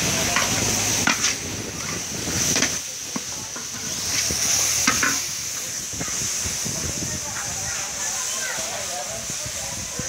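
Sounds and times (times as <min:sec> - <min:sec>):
food sizzling in a pan: 0:00.0 - 0:10.0
utensil scraping and knocking pan: 0:00.3 - 0:06.2.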